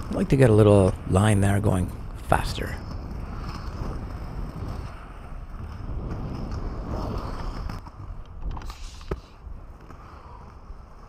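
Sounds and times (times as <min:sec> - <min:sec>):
skate wheels rolling over concrete: 0:00.0 - 0:11.0.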